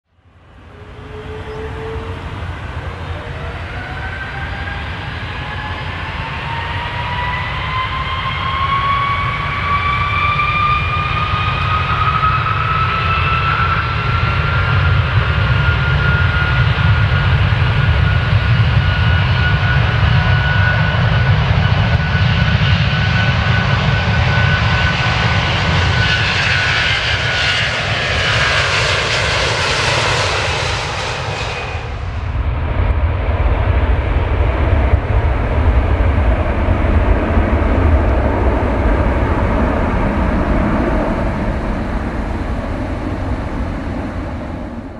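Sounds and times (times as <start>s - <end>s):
airplane engines taking off: 0.1s - 44.9s
high engine whine: 0.2s - 44.9s.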